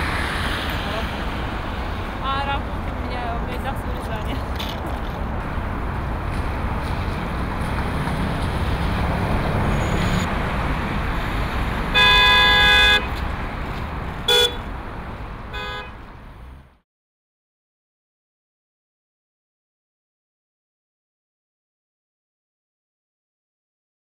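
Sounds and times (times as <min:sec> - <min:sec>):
city street traffic: 0:00.0 - 0:16.8
car horn: 0:11.9 - 0:13.2, 0:14.3 - 0:14.7, 0:15.5 - 0:16.0.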